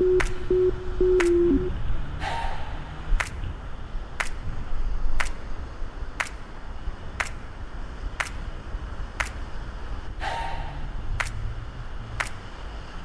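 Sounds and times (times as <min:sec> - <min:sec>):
sharp clicks: 0:00.0 - 0:01.7, 0:03.2 - 0:03.4, 0:04.2 - 0:04.4, 0:05.2 - 0:05.4, 0:06.2 - 0:06.4, 0:07.2 - 0:07.4, 0:08.2 - 0:08.4, 0:09.2 - 0:09.4, 0:11.2 - 0:11.4, 0:12.2 - 0:12.4
surf washing in: 0:00.0 - 0:13.0.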